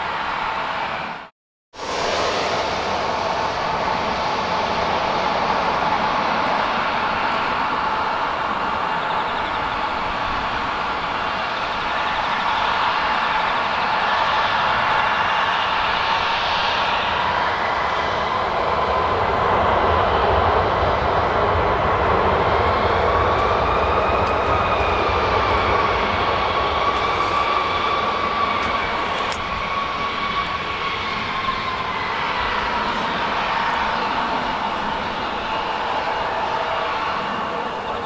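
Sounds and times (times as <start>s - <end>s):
jet engines running: 0.0s - 38.0s.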